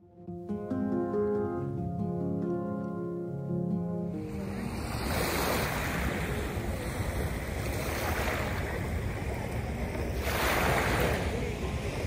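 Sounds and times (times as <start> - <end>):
small waves washing ashore: 4.1 - 12.0.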